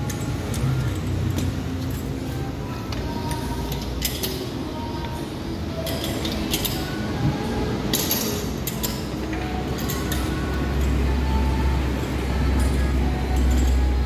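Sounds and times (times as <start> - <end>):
metallic clinks of hand tools: 5.8 - 7.0, 12.5 - 14.0.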